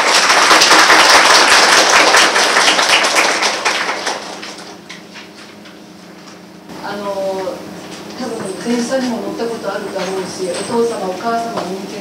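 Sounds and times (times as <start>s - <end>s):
students applauding: 0.0s - 4.8s.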